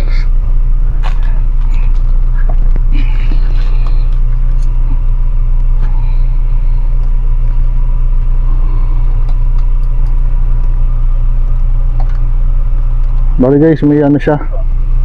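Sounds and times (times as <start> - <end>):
loud steady low hum: 0.0 - 15.0.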